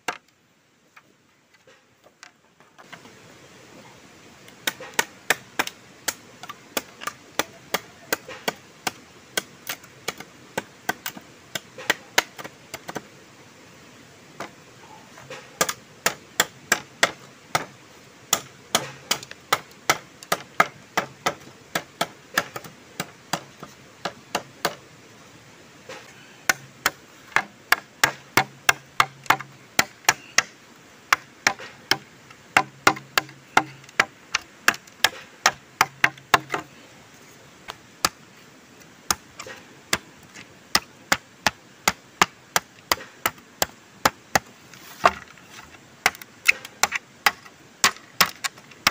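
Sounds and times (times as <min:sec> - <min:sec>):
machete chopping bamboo: 0:04.6 - 0:13.0, 0:15.3 - 0:24.8, 0:25.9 - 0:36.7, 0:39.1 - 0:45.3, 0:46.0 - 0:48.9.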